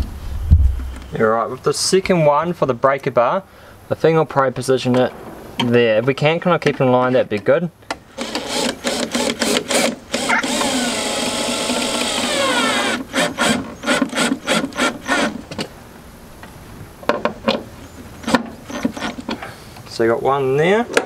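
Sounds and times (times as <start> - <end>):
cordless drill driving screw: 8.2 - 15.4.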